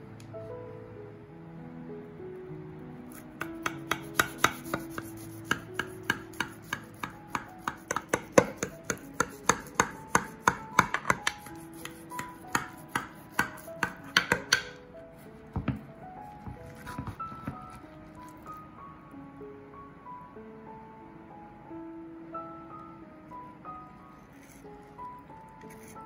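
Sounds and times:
knife tapping ceramic dish: 0:03.4 - 0:14.8.

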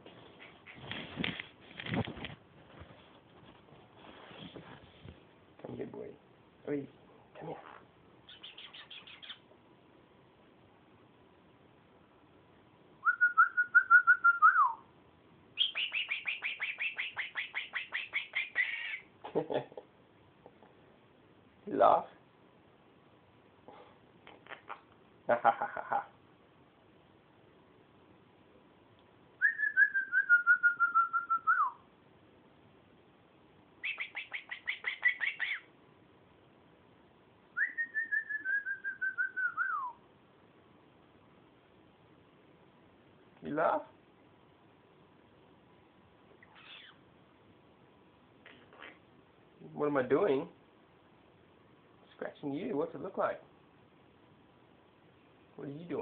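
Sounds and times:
parrot high chirps: 0:07.6 - 0:09.5, 0:15.6 - 0:19.1, 0:33.8 - 0:35.7, 0:37.6 - 0:40.0, 0:46.4 - 0:47.0
parrot whistling notes: 0:29.4 - 0:31.8, 0:37.6 - 0:40.0.

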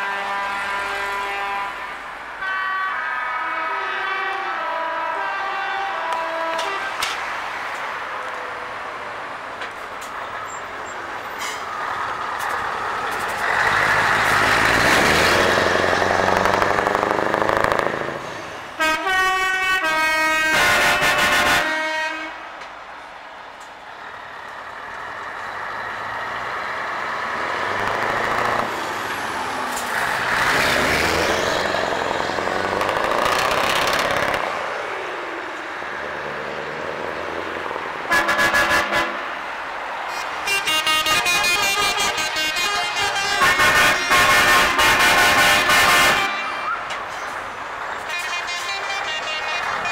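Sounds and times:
truck air horn: 0:00.0 - 0:07.1, 0:18.3 - 0:22.5, 0:38.1 - 0:39.3, 0:40.1 - 0:47.0, 0:48.0 - 0:49.9
trucks driving past: 0:00.0 - 0:49.9.

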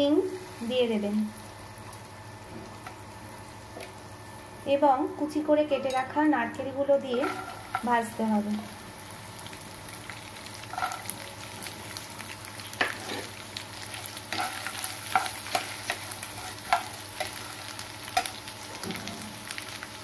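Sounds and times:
spices sizzling in hot oil: 0:00.0 - 0:20.0
spatula scraping pan: 0:07.1 - 0:07.9, 0:10.7 - 0:11.1, 0:12.8 - 0:13.4, 0:14.3 - 0:18.3.

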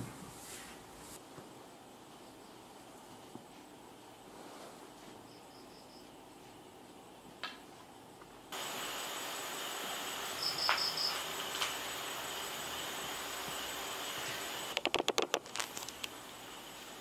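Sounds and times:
steady hiss: 0:00.0 - 0:17.0
crickets chirping: 0:05.2 - 0:06.3, 0:08.5 - 0:17.0.

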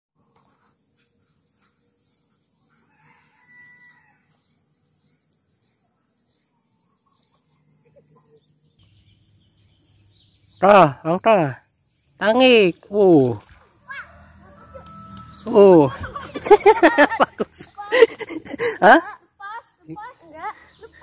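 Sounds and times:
small birds chirping: 0:00.2 - 0:21.0
rooster crowing: 0:02.8 - 0:04.3, 0:13.9 - 0:17.4.

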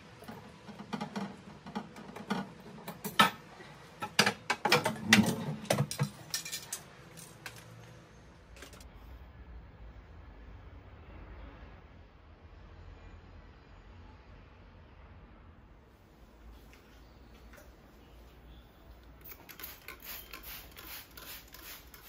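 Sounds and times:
bottles clinking and clattering: 0:00.2 - 0:07.5.

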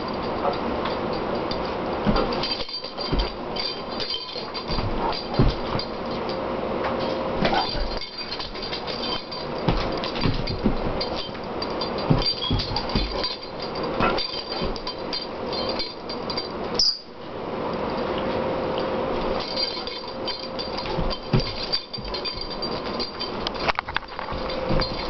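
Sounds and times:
faint steady hum: 0:00.0 - 0:25.0
short high squeak: 0:16.8 - 0:17.1.

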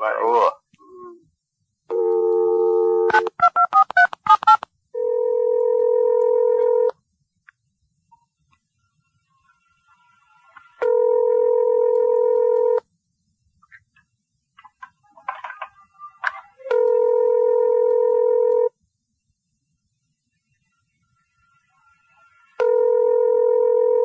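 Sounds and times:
telephone ringback tone: 0:05.0 - 0:06.9, 0:10.8 - 0:12.8, 0:16.7 - 0:18.7, 0:22.6 - 0:24.0.

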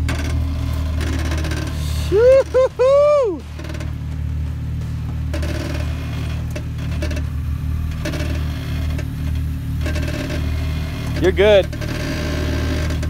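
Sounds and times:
engine running at low revs: 0:00.0 - 0:13.0.

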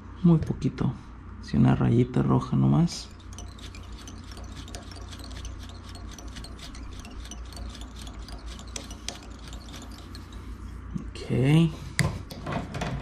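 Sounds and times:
steady low hum: 0:00.0 - 0:13.0
thread winding scratchy rubbing: 0:02.9 - 0:11.0.

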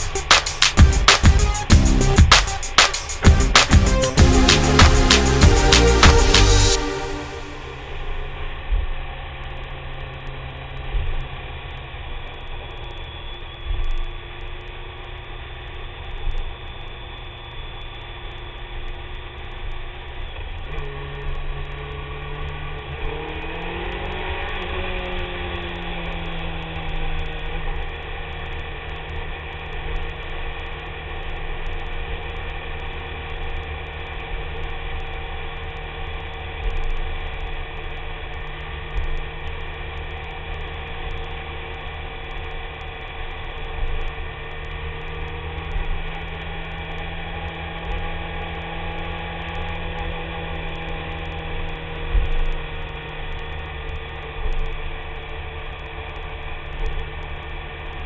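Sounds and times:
motorcycle engine cruising: 0:20.3 - 0:37.0.

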